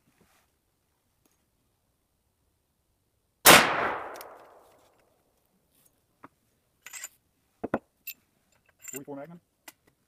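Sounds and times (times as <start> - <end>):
rifle gunshot with echo: 3.4 - 4.6.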